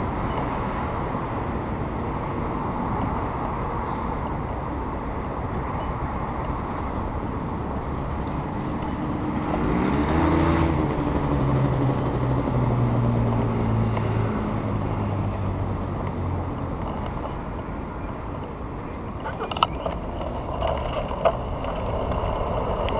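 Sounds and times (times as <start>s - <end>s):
city traffic noise: 0.0s - 22.9s
motorcycle engine passing: 9.0s - 14.8s.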